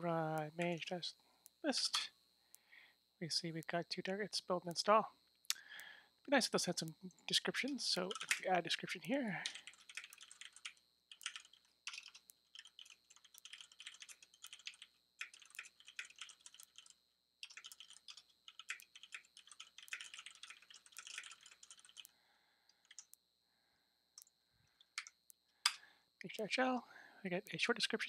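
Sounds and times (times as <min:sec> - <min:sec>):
keyboard typing: 0:07.9 - 0:22.1, 0:22.8 - 0:23.1, 0:25.0 - 0:25.8.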